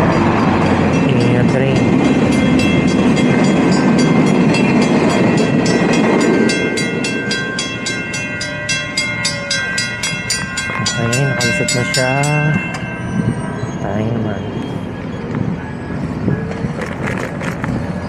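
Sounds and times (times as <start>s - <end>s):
rapid even ringing: 0.0s - 13.8s
train rumbling: 0.0s - 18.0s.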